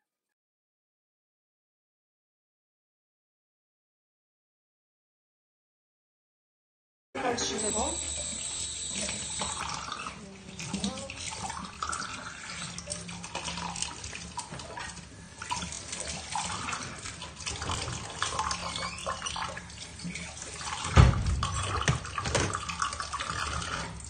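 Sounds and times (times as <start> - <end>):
tap water running into sink: 7.2 - 24.0
dull thump: 21.0 - 22.1.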